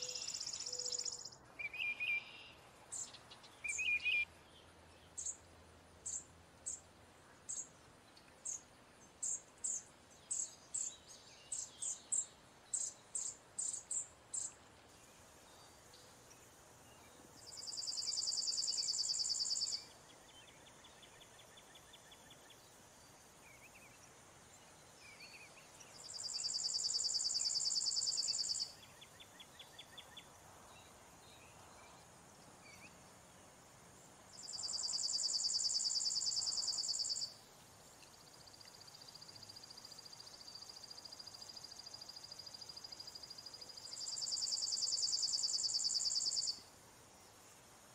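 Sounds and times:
sparrow trills: 0:00.0 - 0:04.3.

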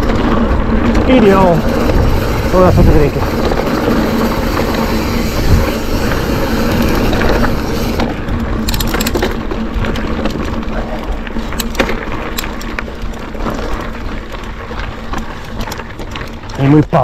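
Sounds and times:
wind rushing: 0:00.0 - 0:08.9
bike tyres on gravel: 0:00.0 - 0:17.0
sharp clicks and rattles: 0:00.0 - 0:17.0.

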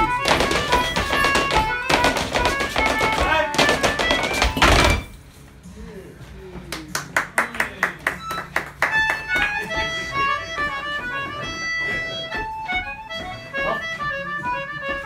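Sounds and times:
accordion playing folk dance tune: 0:00.0 - 0:04.6, 0:08.2 - 0:15.0
sharp taps: 0:00.1 - 0:04.9.

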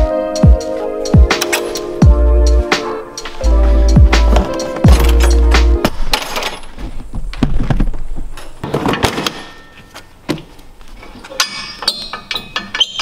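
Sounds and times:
metallic knocks and clinks: 0:11.0 - 0:13.0.

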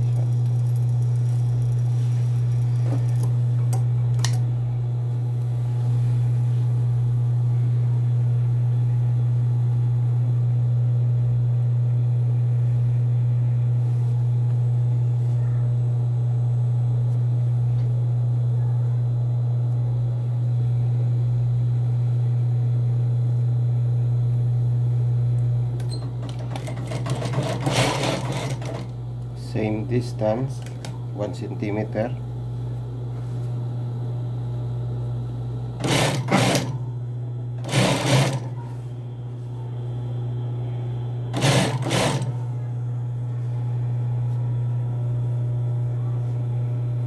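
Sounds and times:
sewing machine motor humming: 0:25.8 - 0:29.0, 0:35.8 - 0:36.9, 0:37.5 - 0:38.7, 0:41.2 - 0:42.5.

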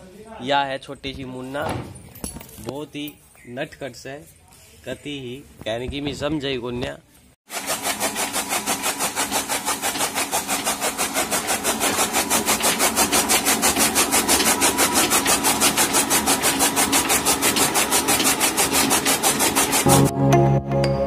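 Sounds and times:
chaff cutter blades chopping fodder: 0:07.5 - 0:20.1.

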